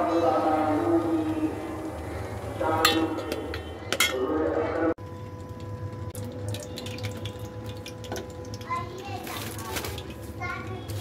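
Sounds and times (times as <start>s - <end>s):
kitchenware clinking: 2.8s - 4.3s.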